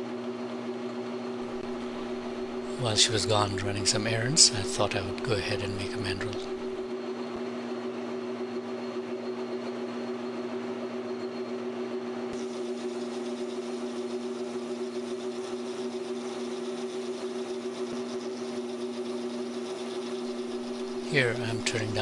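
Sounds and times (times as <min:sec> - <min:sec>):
metal lathe whining: 0:01.5 - 0:06.8, 0:12.4 - 0:22.0.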